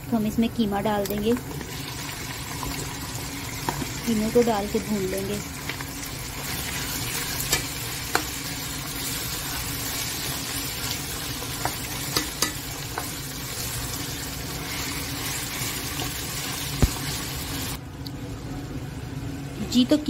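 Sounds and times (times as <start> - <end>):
meat sizzling in a pot: 0.1 - 17.8
spoon knocking against pot: 11.6 - 12.6.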